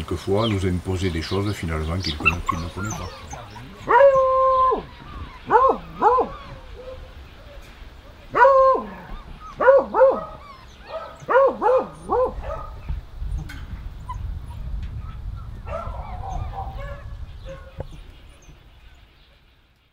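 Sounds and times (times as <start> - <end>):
dogs barking: 1.9 - 18.6
low rumble: 11.9 - 18.9.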